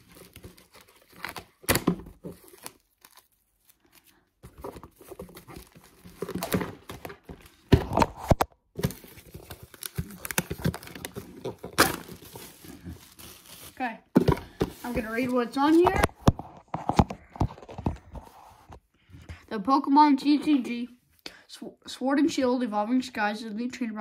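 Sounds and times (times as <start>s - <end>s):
plastic wrap crinkling and tearing: 0.0s - 13.9s.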